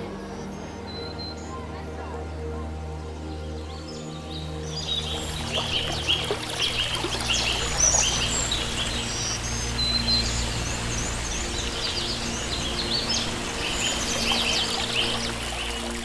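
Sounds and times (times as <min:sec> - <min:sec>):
small birds chirping: 0:03.2 - 0:16.0
running water: 0:04.5 - 0:16.0.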